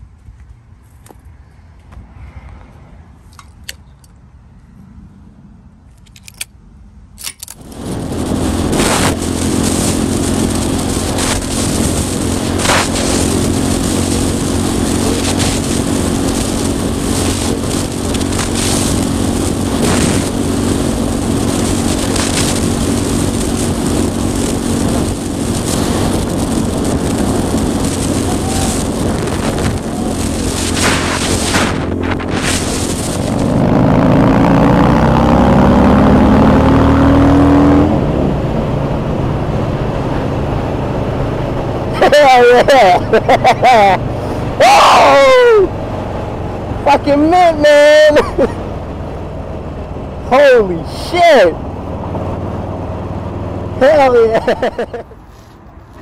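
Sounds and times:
wind rush on microphone: 7.2s - 50.8s
motorcycle engine running: 7.6s - 36.1s.

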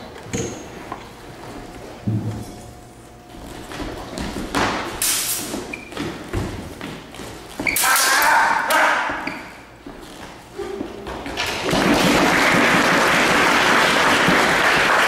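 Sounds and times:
feet stamping on wooden floor: 3.3s - 5.0s, 5.6s - 7.7s
sabre blades clashing: 7.8s - 9.2s.

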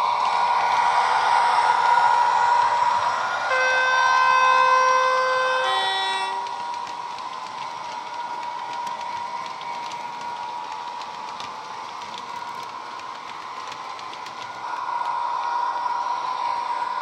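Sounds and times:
electric locomotive whine: 0.0s - 17.0s
wheels clicking on track: 0.0s - 17.0s.

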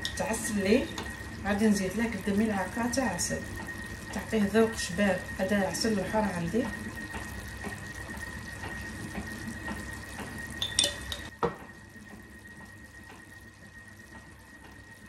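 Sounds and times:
pot simmering with watery hiss: 0.0s - 15.0s
metal spoon clinking on pot: 10.6s - 11.3s.

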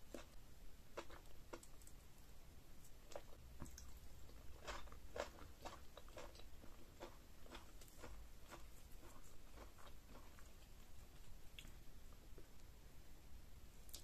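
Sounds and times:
wet chewing: 3.1s - 11.8s.

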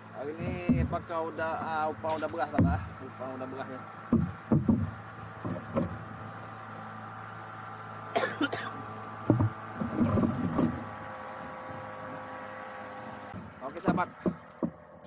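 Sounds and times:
steady low hum: 0.0s - 15.0s
fishing gear knocks and thumps: 2.1s - 2.8s, 4.1s - 6.0s, 13.6s - 15.0s
man coughing: 8.1s - 8.8s.

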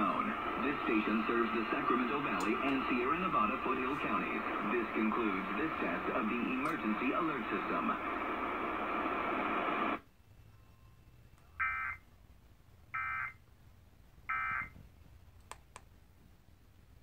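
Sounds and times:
broadcast audio: 0.0s - 10.6s.

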